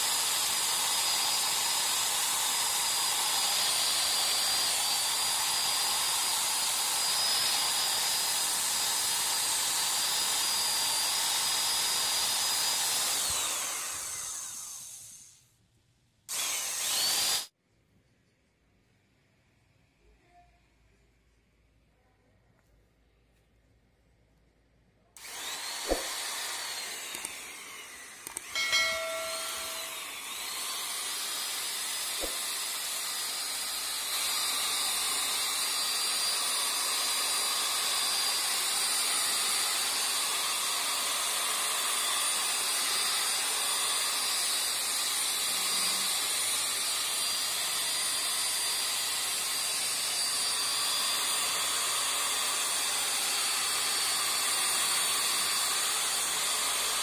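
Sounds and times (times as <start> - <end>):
electric drill motor whine: 0.0 - 15.4, 16.3 - 17.5, 25.2 - 57.0
buffing pad rubbing hiss: 25.9 - 26.1.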